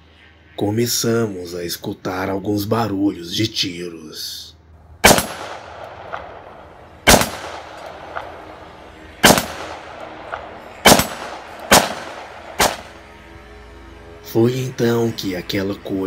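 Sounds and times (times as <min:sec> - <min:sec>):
loud gunshots with echo: 0:05.0 - 0:08.5, 0:09.2 - 0:13.0.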